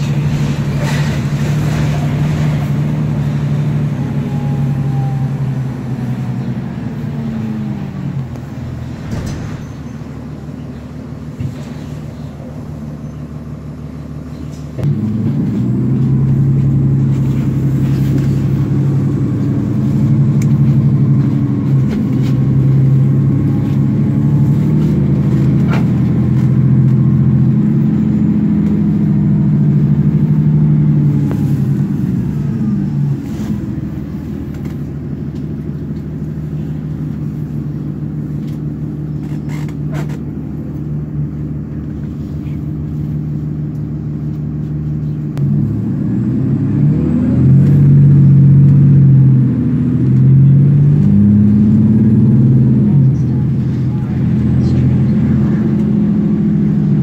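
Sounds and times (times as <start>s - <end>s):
bus diesel engine hum: 0.0s - 57.0s.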